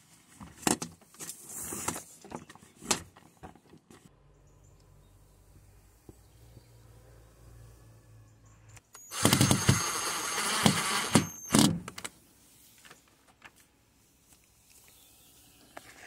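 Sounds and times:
cordless drill whining: 9.0s - 11.8s.

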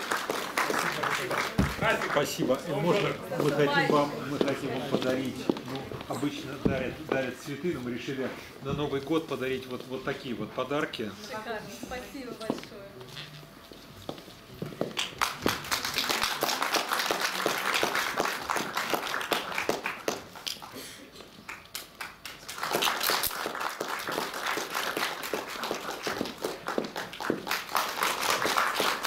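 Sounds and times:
audience applauding: 0.0s - 3.2s, 15.0s - 29.0s.

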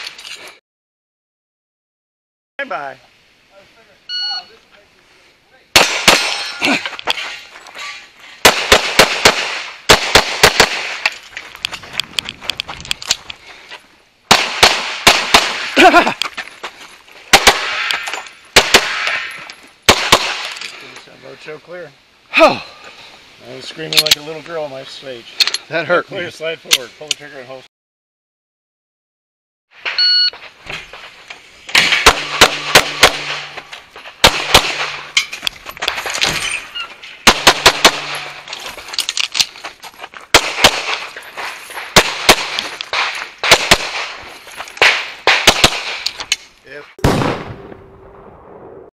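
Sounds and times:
pistol shots: 5.8s - 6.6s, 8.4s - 11.1s, 14.3s - 15.8s, 17.3s - 18.0s, 18.6s - 19.3s, 19.9s - 20.6s, 31.7s - 33.6s, 34.2s - 35.2s, 37.2s - 38.5s, 40.3s - 41.2s, 41.8s - 44.2s, 44.8s - 46.1s, 47.0s - 47.8s.

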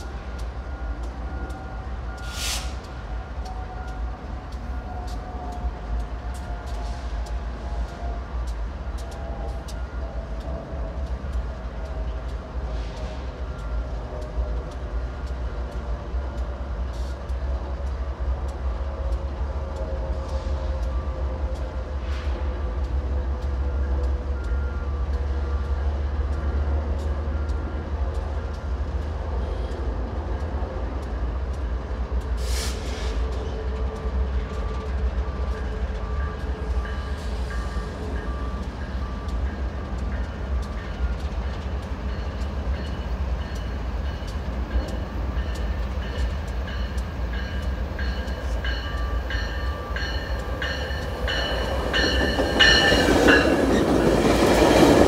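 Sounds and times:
train rumble: 0.0s - 55.0s
repeated bell strikes: 36.2s - 53.9s
alternating two-tone chime: 42.1s - 53.7s.

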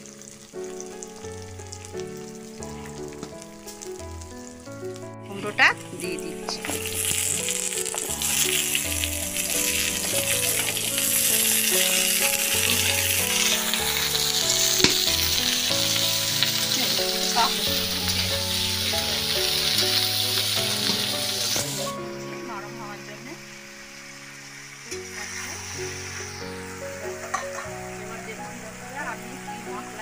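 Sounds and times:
light background music: 0.0s - 30.0s
vegetables sizzling in hot oil: 0.0s - 30.0s
spatula knocking on pan: 14.8s - 15.3s.

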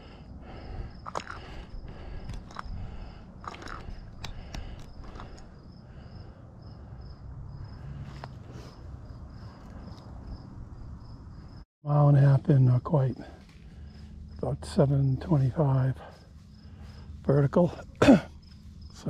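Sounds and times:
crunchy clicks: 0.7s - 6.1s.

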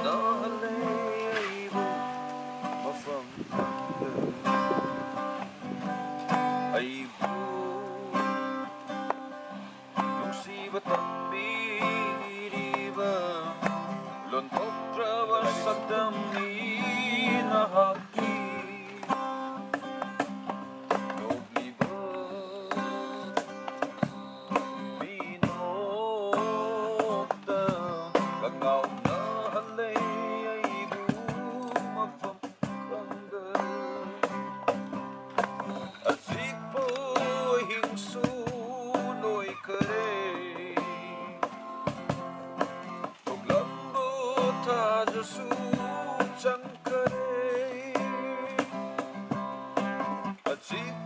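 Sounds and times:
man singing: 0.0s - 5.6s, 6.2s - 9.2s, 9.9s - 42.2s, 42.8s - 51.0s
strummed acoustic guitar: 0.0s - 51.0s.

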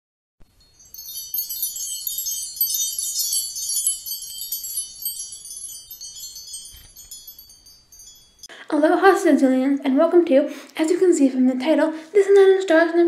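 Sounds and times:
high tinkling chimes: 0.4s - 8.5s.

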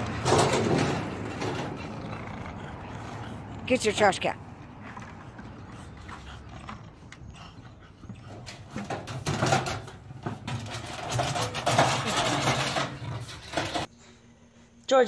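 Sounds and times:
metal trash can clattering: 0.0s - 1.8s, 8.8s - 13.9s
dog claws scrabbling on metal: 0.1s - 2.0s, 8.2s - 13.9s.

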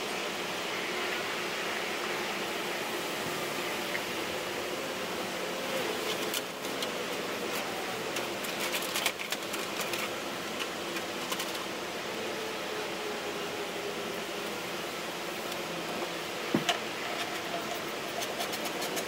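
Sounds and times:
steady hiss: 0.0s - 19.0s
clicking and crackling fiberglass cloth: 6.0s - 11.7s.

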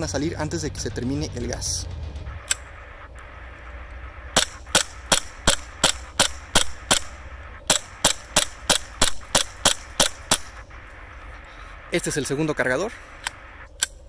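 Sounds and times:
airsoft pistol shots: 4.3s - 10.6s.

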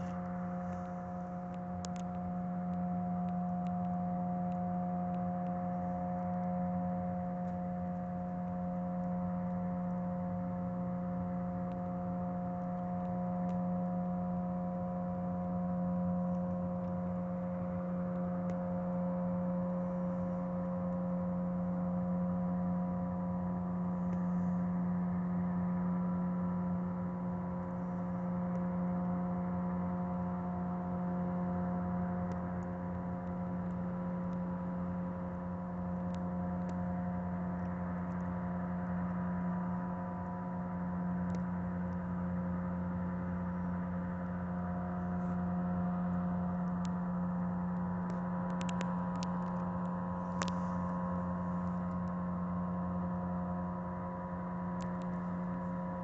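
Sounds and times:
light ticks: 0.0s - 10.8s, 11.5s - 21.8s, 27.5s - 28.8s, 32.2s - 40.4s, 41.2s - 42.2s, 46.5s - 47.0s, 47.6s - 52.3s, 54.7s - 55.7s.

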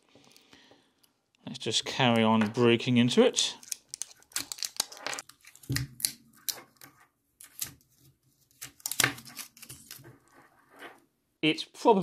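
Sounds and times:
plastic clicking and crackling: 3.6s - 7.6s.

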